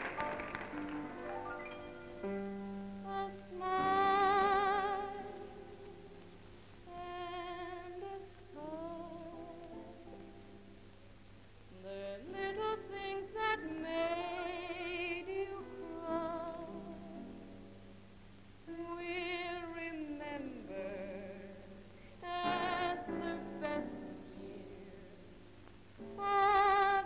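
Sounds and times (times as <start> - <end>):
instrumental accompaniment: 0.0 - 3.2
woman singing with vibrato: 3.0 - 6.2, 6.9 - 10.1, 11.8 - 17.4, 18.7 - 25.3, 26.1 - 27.0.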